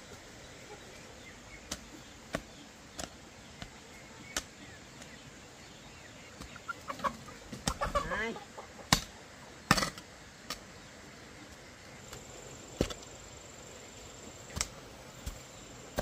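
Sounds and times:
hen clucking: 6.4 - 9.3
hoe chopping soil and stones: 9.7 - 10.6.

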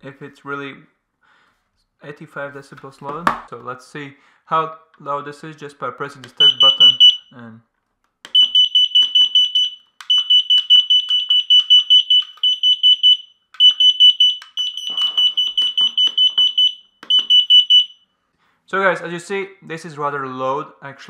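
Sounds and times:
shrill alarm beeping rapidly: 6.4 - 7.3, 8.3 - 18.1.

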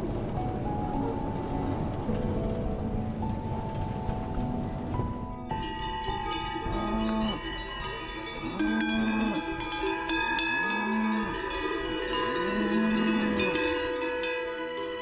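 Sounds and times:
cowbells clanking: 5.4 - 15.0
cows mooing: 6.1 - 14.3.

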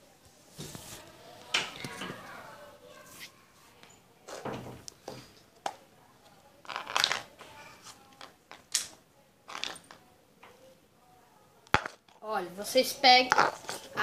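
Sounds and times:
rubber bands rustling in a tub: 6.6 - 8.3.

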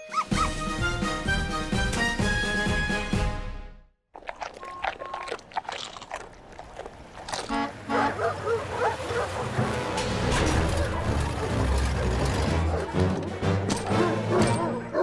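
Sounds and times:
dogs barking and yelping: 0.0 - 0.6, 4.4 - 9.9, 10.5 - 15.0.

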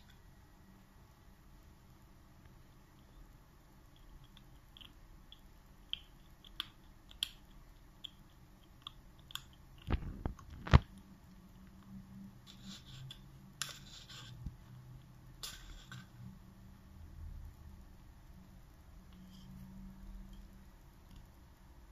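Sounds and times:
kitten scratching cardboard: 12.5 - 14.6.

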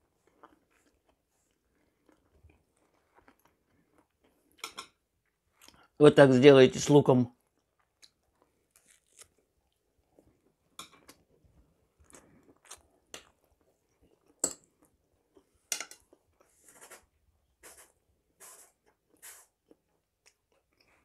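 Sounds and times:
chewing with wet mouth smacks: 12.0 - 15.5.

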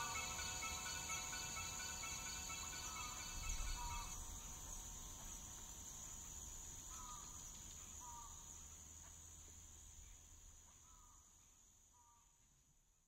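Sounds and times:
insect trilling: 0.0 - 5.6
insect chirps: 0.0 - 13.0.

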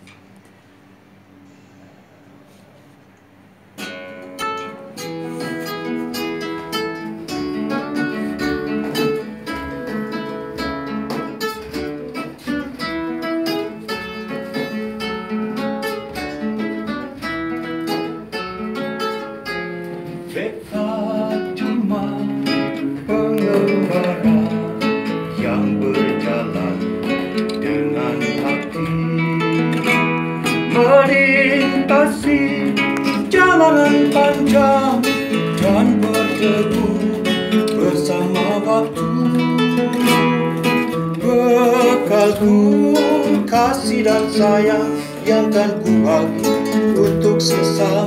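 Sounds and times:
acoustic guitar picked and strummed: 3.3 - 48.0.

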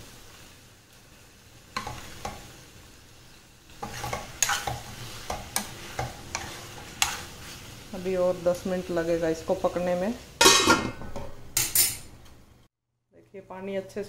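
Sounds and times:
soft sizzle: 0.0 - 14.0
spoon scraping pan: 1.8 - 2.5, 3.7 - 7.8.

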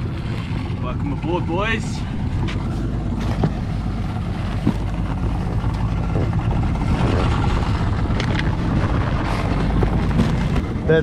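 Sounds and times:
outboard motor idling: 0.0 - 11.0.

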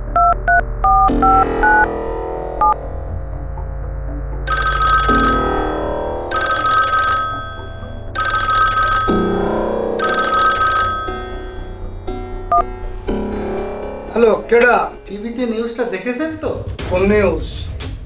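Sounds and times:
mobile phone ringing: 4.5 - 11.9.

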